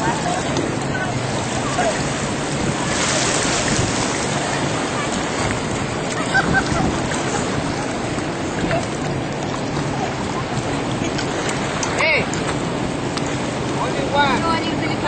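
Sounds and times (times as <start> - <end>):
surf rushing: 0.0 - 15.0
wind buffeting microphone: 0.0 - 15.0.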